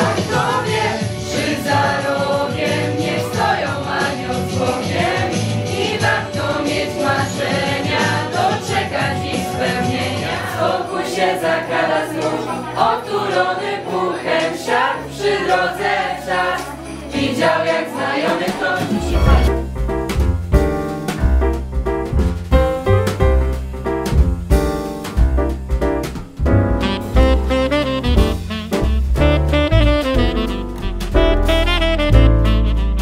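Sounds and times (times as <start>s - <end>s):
group singing in chorus: 0.0s - 19.6s.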